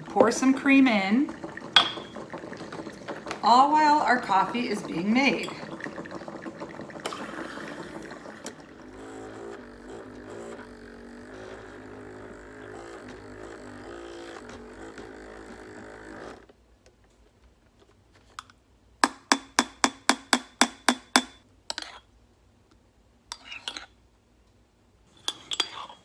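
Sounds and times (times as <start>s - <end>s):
milk frother whirring: 0.0s - 16.5s.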